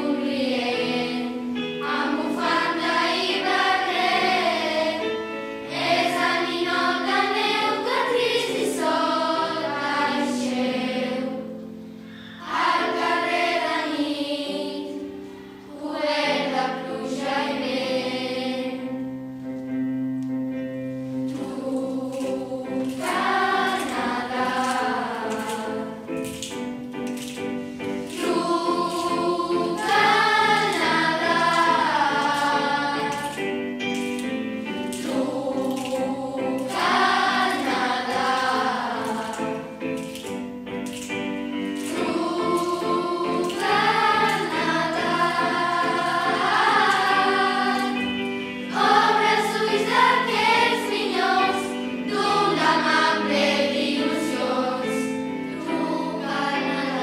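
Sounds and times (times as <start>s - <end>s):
girls' choir singing: 0.0s - 19.2s, 21.0s - 26.5s, 27.2s - 57.0s.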